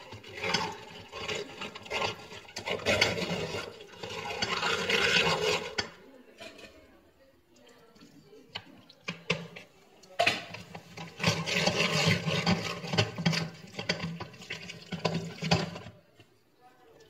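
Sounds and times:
wet squelching and scraping: 0.0s - 5.9s, 10.5s - 15.9s.

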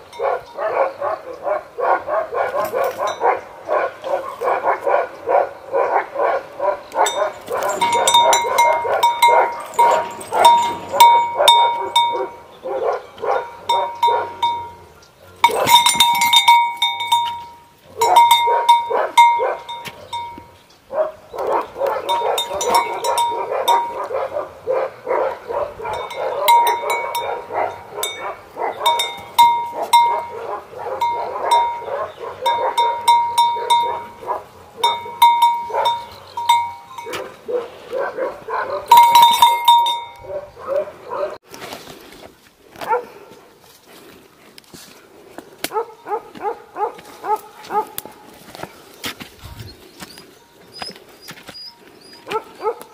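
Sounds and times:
dogs vocalising: 0.2s - 15.9s, 20.9s - 39.1s, 49.5s - 52.9s
small bell ringing: 7.1s - 12.3s, 15.4s - 20.5s, 22.1s - 24.0s, 28.9s - 30.4s, 32.5s - 34.2s, 34.8s - 37.2s, 38.9s - 40.2s.

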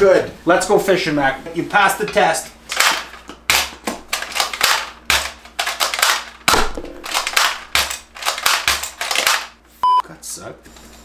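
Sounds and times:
sharp shot-like cracks: 4.5s - 9.5s.

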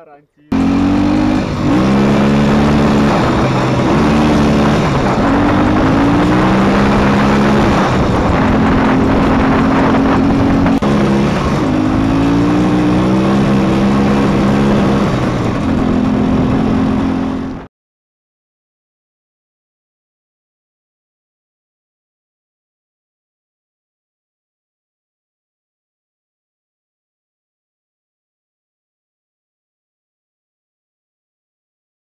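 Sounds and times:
motorcycle engine accelerating: 0.5s - 17.7s
wind noise on microphone: 1.2s - 17.7s.

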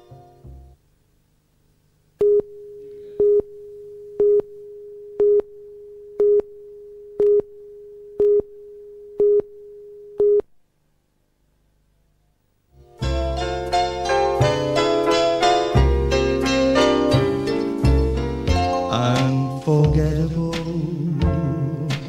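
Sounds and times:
countdown beeps: 3.2s - 3.6s.

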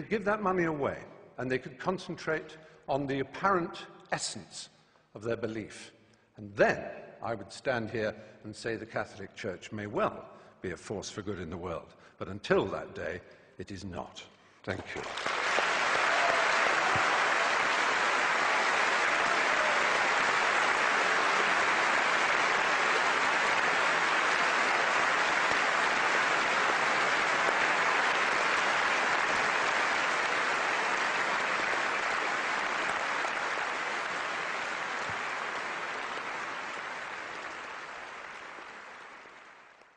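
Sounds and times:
large audience applauding: 14.8s - 39.9s.

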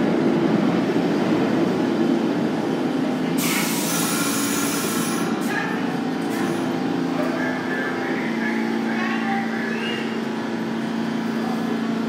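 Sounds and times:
subway train wheels rumbling: 0.0s - 12.0s
air brakes hissing: 3.4s - 5.4s.

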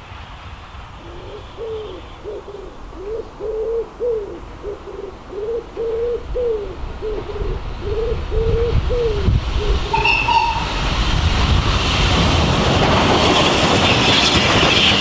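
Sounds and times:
wood pigeon cooing: 1.0s - 10.2s.

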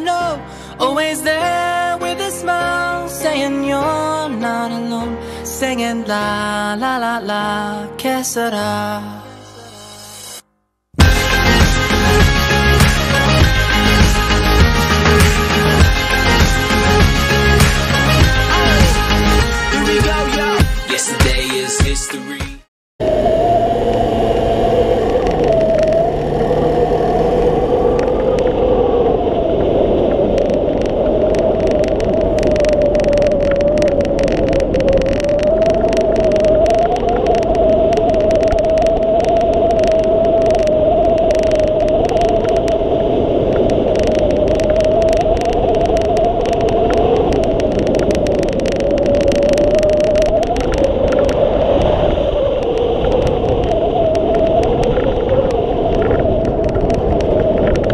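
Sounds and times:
wavering moaning tone: 23.0s - 57.9s
wind rushing over camera: 23.0s - 57.9s.

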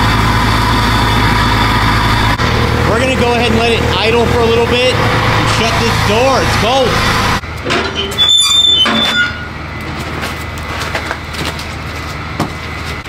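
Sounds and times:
steady rushing noise: 0.4s - 7.5s
metal firebox door squeaking open: 7.7s - 9.6s.

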